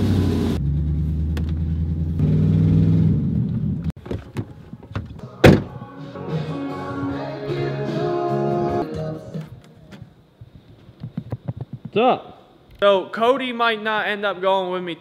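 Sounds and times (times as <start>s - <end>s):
truck door shutting: 4.0s - 5.9s.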